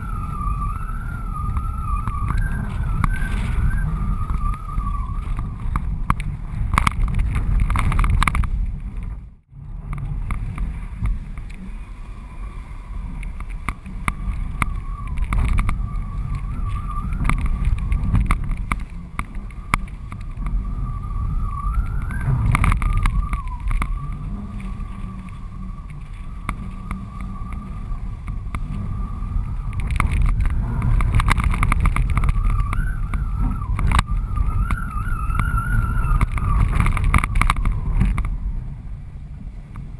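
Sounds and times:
wavering whistle: 0:00.0 - 0:05.8, 0:13.9 - 0:31.1, 0:32.0 - 0:38.1
wind buffeting camera: 0:00.0 - 0:39.9.

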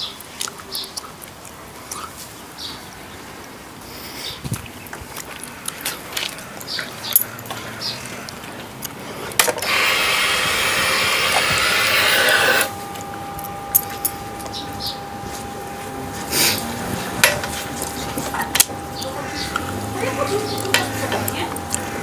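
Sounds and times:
faint high whine: 0:09.5 - 0:22.0
steady hiss: 0:09.6 - 0:22.0.

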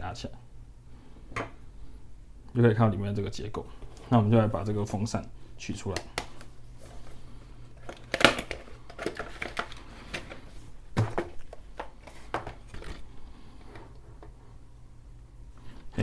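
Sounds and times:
packaging rustling and crinkling: 0:06.3 - 0:14.4.

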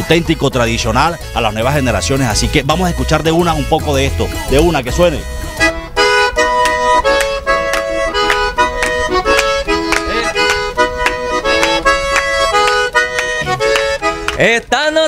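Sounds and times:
button accordion melody: 0:00.0 - 0:15.0
hand clapping: 0:06.4 - 0:14.5.

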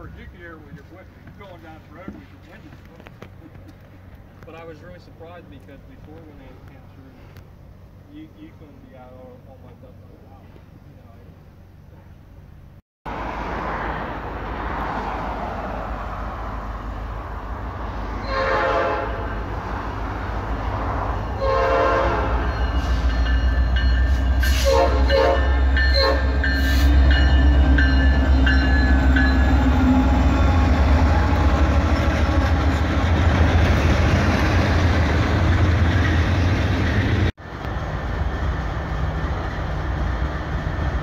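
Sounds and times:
locomotive engine rumble: 0:00.0 - 0:12.8, 0:14.2 - 0:41.0
train air horn blasts: 0:18.2 - 0:19.5, 0:21.4 - 0:23.2, 0:24.1 - 0:27.1.

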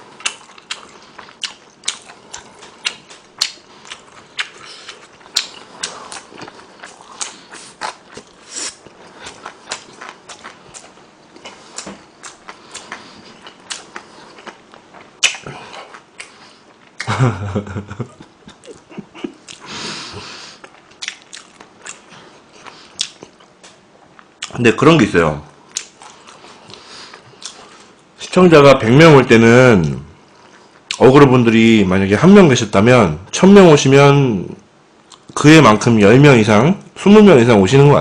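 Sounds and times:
close chewing crunches: 0:00.0 - 0:17.1, 0:20.6 - 0:24.6, 0:25.7 - 0:28.0.

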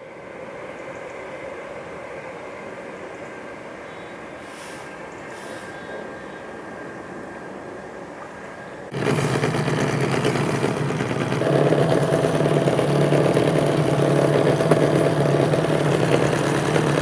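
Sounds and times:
engine idling: 0:08.9 - 0:17.0.

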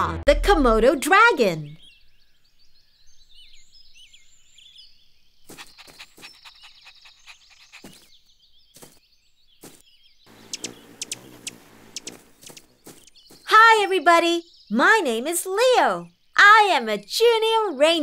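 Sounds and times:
scurrying run with high clicks: 0:05.5 - 0:08.2, 0:10.4 - 0:13.5.

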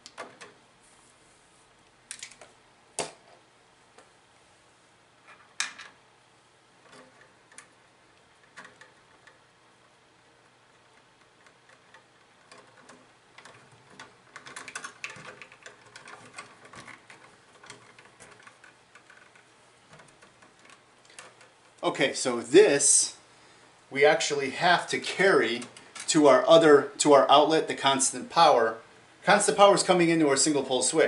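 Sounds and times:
wires clicking and rustling: 0:00.0 - 0:01.2, 0:01.8 - 0:04.2, 0:06.8 - 0:23.2, 0:23.8 - 0:27.1.

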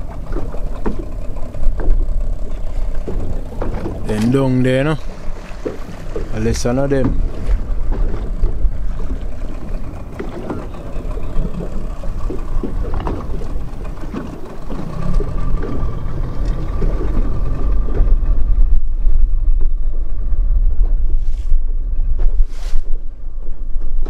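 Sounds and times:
steady engine hum: 0:00.0 - 0:24.0
water slapping boat hull: 0:00.0 - 0:24.0
wind buffeting microphone: 0:00.0 - 0:24.0
knocks on boat: 0:00.2 - 0:18.7.

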